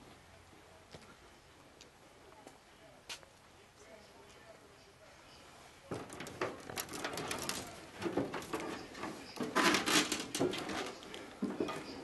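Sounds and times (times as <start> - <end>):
footsteps on metal steps: 5.9 - 12.0.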